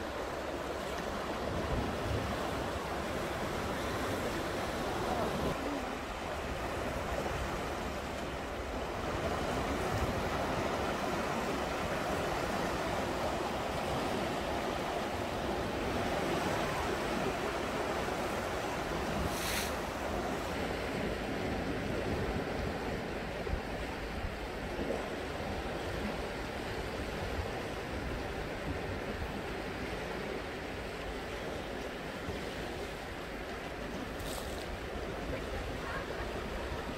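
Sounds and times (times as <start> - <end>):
sea waves washing around rocks: 0.0 - 36.9
short high hiss: 19.2 - 19.8.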